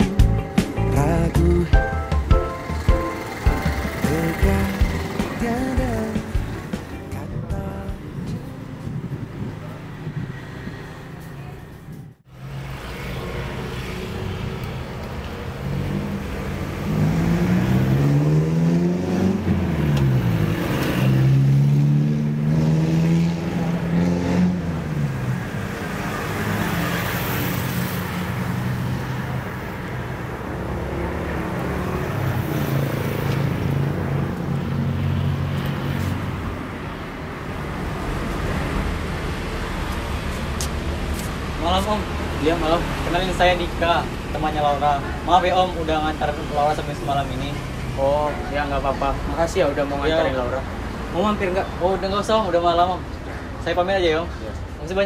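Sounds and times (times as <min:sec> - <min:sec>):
traffic hum: 0:00.0 - 0:55.0
vehicles passing: 0:00.0 - 0:55.0.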